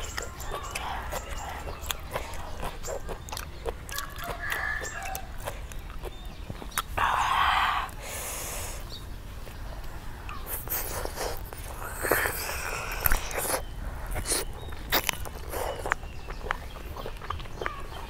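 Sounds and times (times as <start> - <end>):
fingers tearing chicken: 0.0 - 6.9
biting into chicken: 0.0 - 7.0, 10.3 - 18.0.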